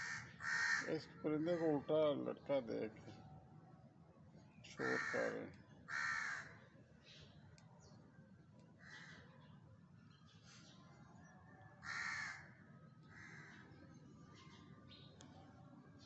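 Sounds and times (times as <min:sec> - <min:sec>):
crows cawing harshly: 0:00.0 - 0:01.9, 0:04.8 - 0:06.6, 0:08.8 - 0:09.5, 0:11.8 - 0:13.8.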